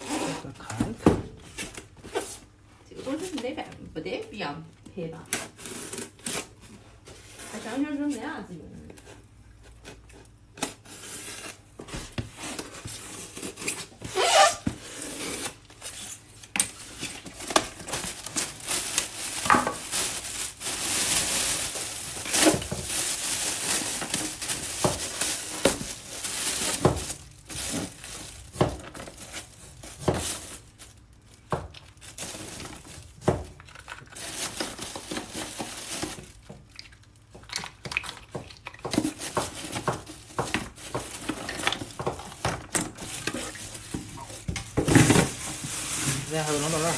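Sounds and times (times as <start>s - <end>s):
plastic bag rustling: 10.8s - 37.1s, 38.9s - 46.9s.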